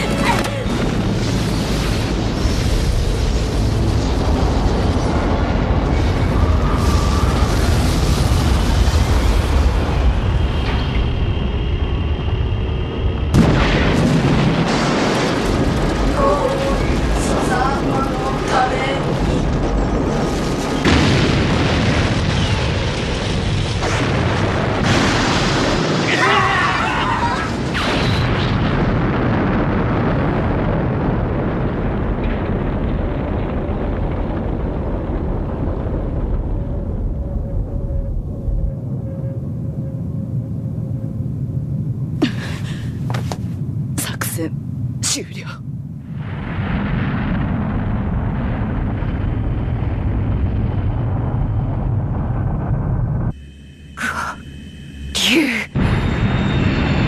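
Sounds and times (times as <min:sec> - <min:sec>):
explosion rumble: 0:00.0 - 0:45.0, 0:45.6 - 0:57.0.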